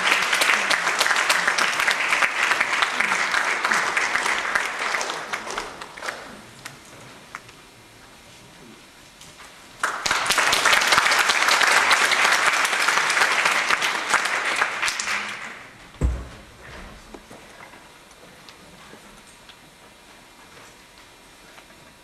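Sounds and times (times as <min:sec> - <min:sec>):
audience applauding: 0:00.0 - 0:07.4, 0:09.8 - 0:15.8.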